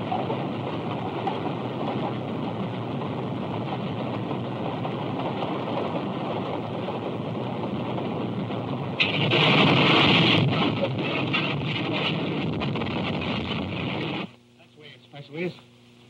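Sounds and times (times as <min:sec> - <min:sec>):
steam train rolling on track: 0:00.0 - 0:14.1.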